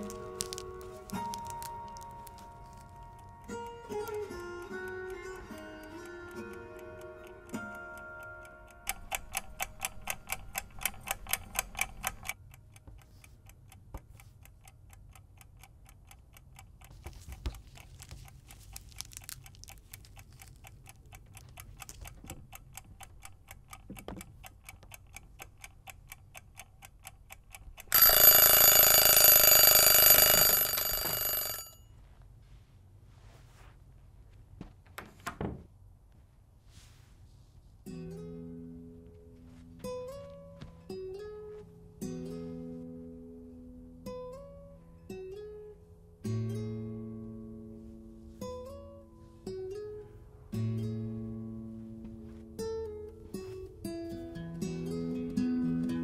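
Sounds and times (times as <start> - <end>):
clock ticking: 0.0 - 31.7
alarm ringing: 27.9 - 31.8.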